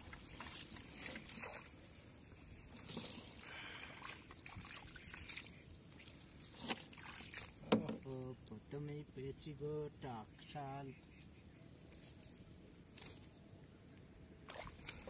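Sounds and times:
hands splashing in muddy water: 2.8 - 7.6, 14.5 - 15.0.

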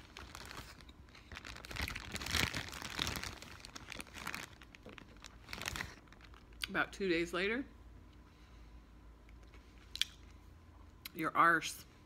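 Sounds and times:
food packaging crinkling: 0.0 - 6.7.

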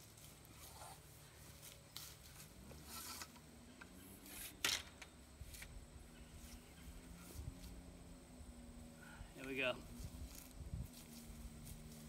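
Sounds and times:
metal pole sections sliding and knocking: 2.7 - 3.4.

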